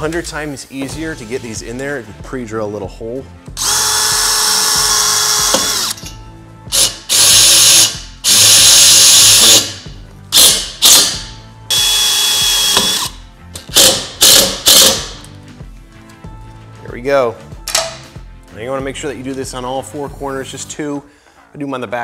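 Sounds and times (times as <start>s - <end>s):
cordless drill whining: 3.6s - 6.0s, 6.7s - 9.7s, 10.3s - 13.2s.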